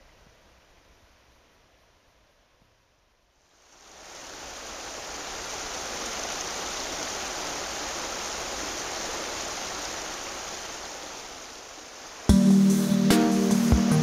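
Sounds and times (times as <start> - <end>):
river water rushing over rocks: 3.6 - 12.3.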